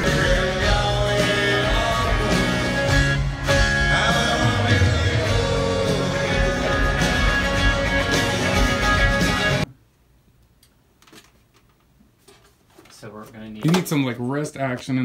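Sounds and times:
person singing: 0.0 - 8.5
electric guitar: 0.0 - 9.7.

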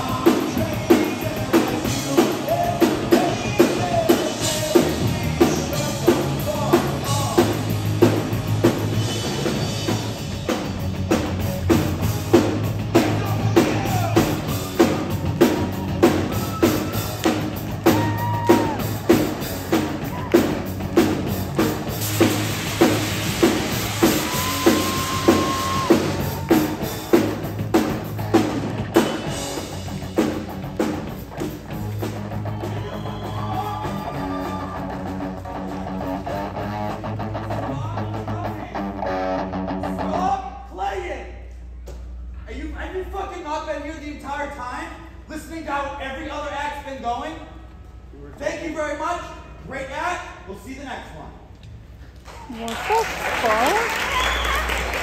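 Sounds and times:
distorted electric guitars: 0.0 - 40.3
drum kit beat: 0.0 - 40.3.

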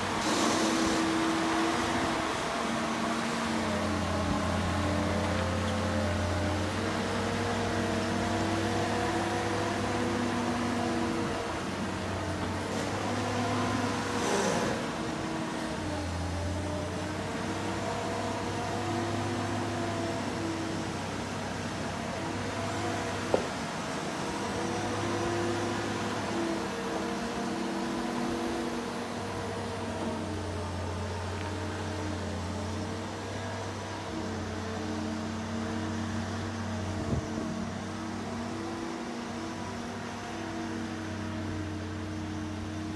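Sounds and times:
engine humming: 0.0 - 42.9
brief hiss: 0.2 - 1.2.

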